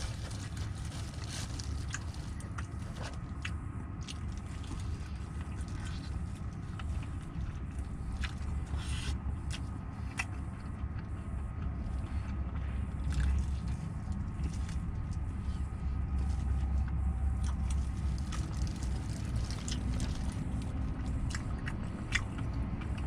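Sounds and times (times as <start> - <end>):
small clicks and crackles: 0.0 - 8.5
crunching bites and chewing: 0.0 - 23.0
steady low rumble: 0.0 - 23.0.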